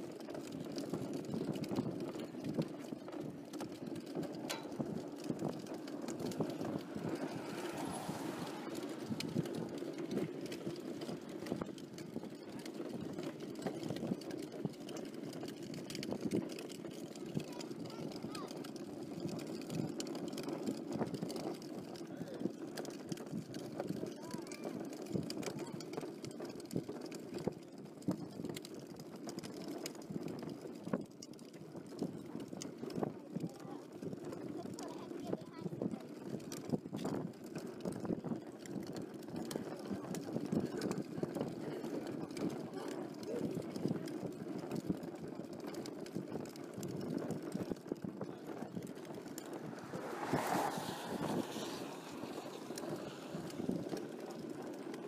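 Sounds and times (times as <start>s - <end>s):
vehicle road rumble: 0.0s - 55.0s
wind buffeting microphone: 0.5s - 18.5s, 31.8s - 54.9s
road rumble on wet road: 4.8s - 11.7s, 48.4s - 55.0s.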